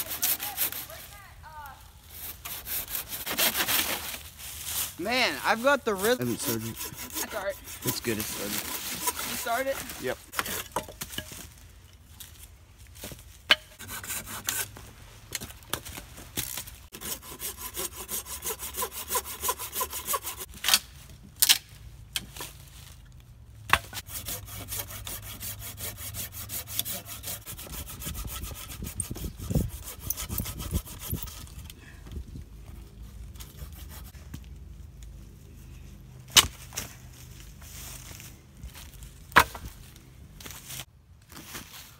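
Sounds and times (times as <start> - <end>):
hand saw cutting a log: 0.0 - 1.0, 2.1 - 4.2, 5.2 - 10.8, 13.5 - 14.8, 16.9 - 20.6, 23.7 - 31.7, 33.4 - 34.2.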